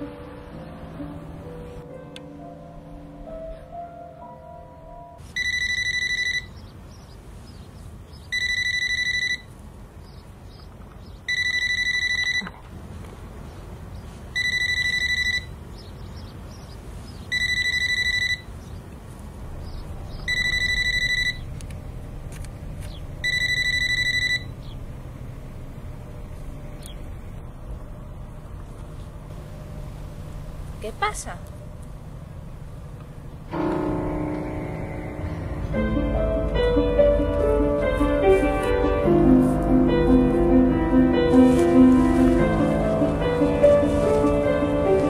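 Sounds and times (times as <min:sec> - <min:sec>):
low background noise: 0:00.0 - 0:45.0
mobile phone ringing: 0:05.3 - 0:06.6, 0:08.3 - 0:09.5, 0:11.3 - 0:12.5, 0:14.4 - 0:15.5, 0:17.3 - 0:18.5, 0:20.3 - 0:21.4, 0:23.2 - 0:24.6.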